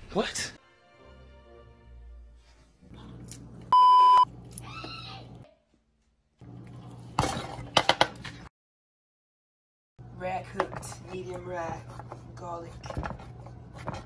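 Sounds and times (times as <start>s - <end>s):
bleep tone: 3.8s - 4.3s.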